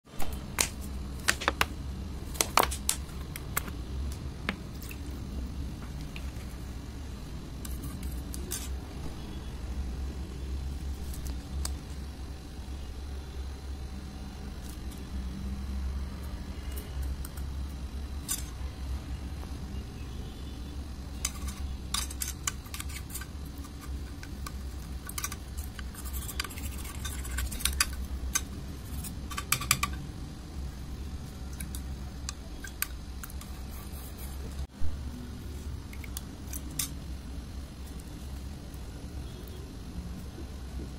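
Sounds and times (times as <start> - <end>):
low steady hum: 0.1 - 40.9
utensils scraping plastic bowl: 25.0 - 29.9.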